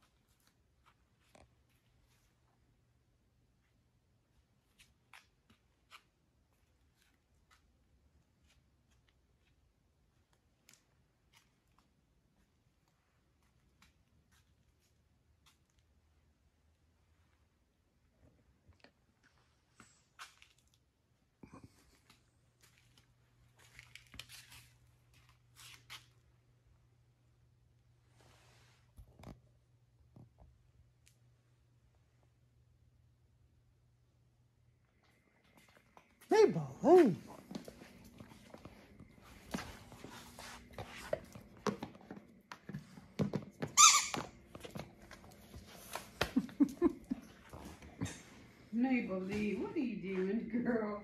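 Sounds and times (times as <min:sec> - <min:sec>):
faint low hum: 0:00.0 - 0:51.0
soft scuffs and clicks: 0:37.0 - 0:46.4
squeaky toy squeaking: 0:43.8 - 0:44.3.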